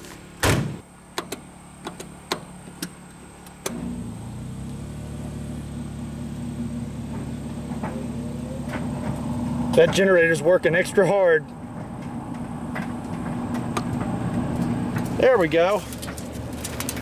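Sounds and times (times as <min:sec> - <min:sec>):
portable generator humming: 0:00.0 - 0:17.0
clothes dryer motor: 0:03.5 - 0:17.0.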